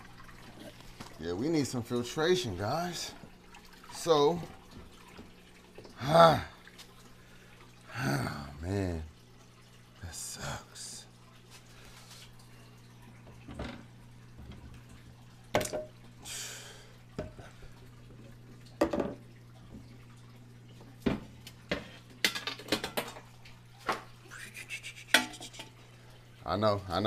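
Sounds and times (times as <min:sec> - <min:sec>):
glass lid and board knocking: 0:18.8 - 0:19.2.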